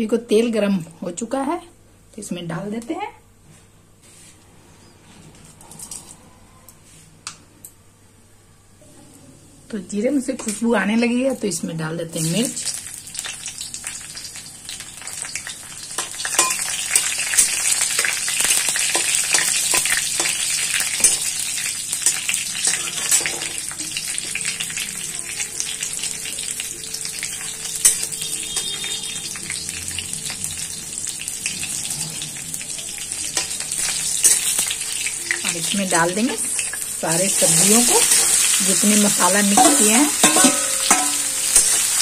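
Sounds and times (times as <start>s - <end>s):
spices sizzling in hot oil: 10.4s - 42.0s
spatula stirring in metal pan: 39.2s - 42.0s.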